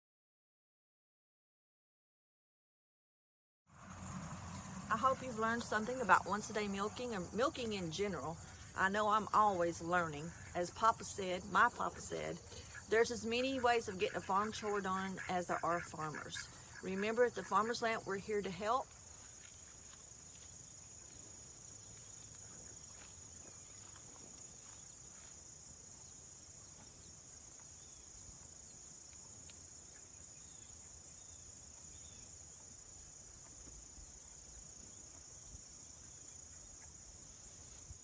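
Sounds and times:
insects chirring: 0:03.7 - 0:38.0.

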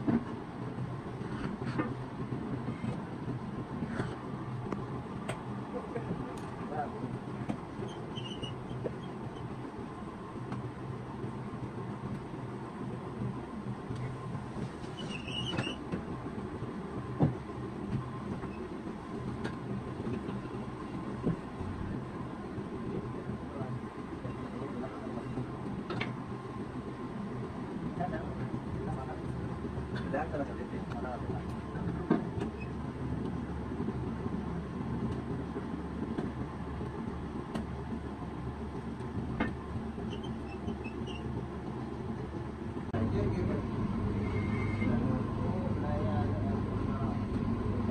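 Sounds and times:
faint hum: 0:00.0 - 0:47.9
steady low rumble: 0:41.3 - 0:47.9.

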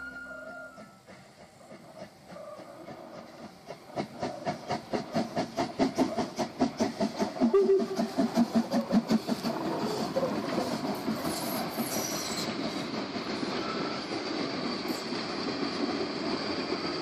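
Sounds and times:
high wheel squeal: 0:00.0 - 0:01.1, 0:09.7 - 0:12.8, 0:13.4 - 0:14.2
steam locomotive chuffing: 0:00.0 - 0:17.0
train wheels rolling on rail: 0:00.0 - 0:17.0.

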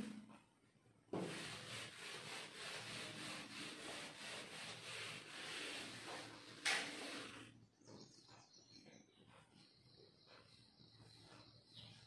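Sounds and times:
duster wiping whiteboard: 0:00.0 - 0:07.6, 0:08.8 - 0:12.0.

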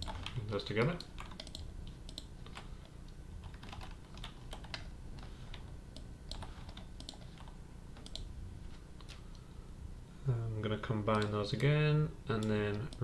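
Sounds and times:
keyboard and mouse clicking: 0:00.0 - 0:02.6, 0:03.4 - 0:08.3, 0:11.1 - 0:11.4
low background hum: 0:00.0 - 0:13.0.

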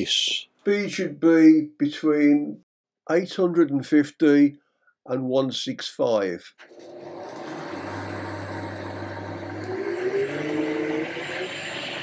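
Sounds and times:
lathe running: 0:06.7 - 0:12.0
motor whine rising in pitch: 0:06.8 - 0:12.0
low hum: 0:07.1 - 0:12.0.

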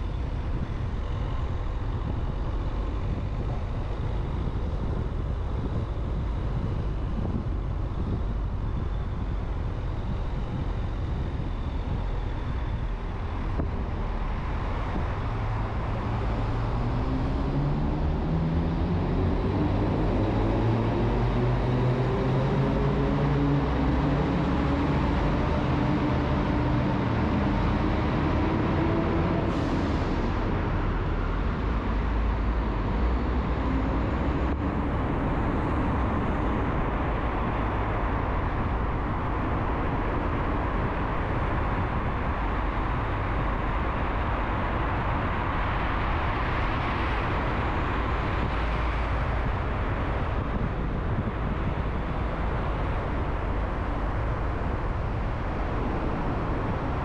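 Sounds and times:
car road and engine noise: 0:00.0 - 0:57.0.

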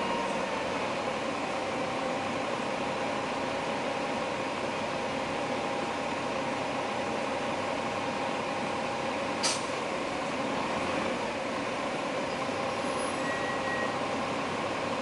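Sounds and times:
bus engine droning: 0:00.0 - 0:15.0
air brakes hissing: 0:09.4 - 0:09.8.

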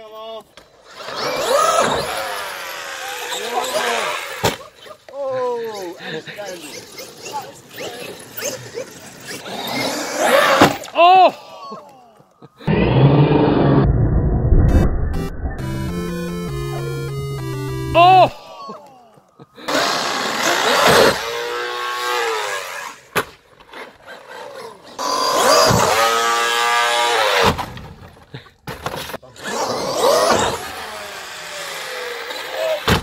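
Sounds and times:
rc truck electric motor whining: 0:00.8 - 0:04.4, 0:24.1 - 0:27.4, 0:29.4 - 0:32.8.

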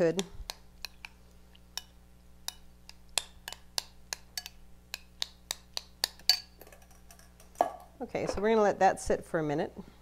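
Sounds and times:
utensil clinking on glass bowl: 0:06.0 - 0:07.8.

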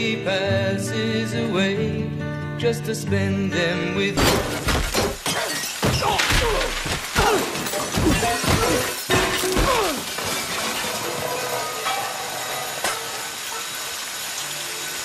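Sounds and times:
crockery and glass breaking: 0:04.2 - 0:15.0
pots and pans clattering: 0:04.2 - 0:15.0
steady hiss: 0:04.2 - 0:15.0.

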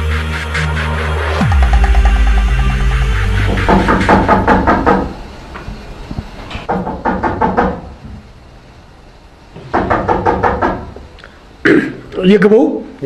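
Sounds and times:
knocking on a door: 0:03.5 - 0:05.2, 0:06.7 - 0:08.2, 0:09.6 - 0:11.0.

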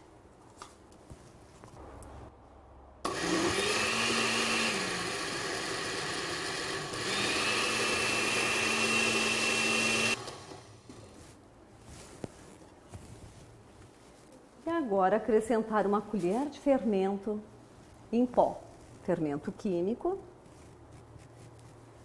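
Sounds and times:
blender motor running: 0:03.1 - 0:10.7.

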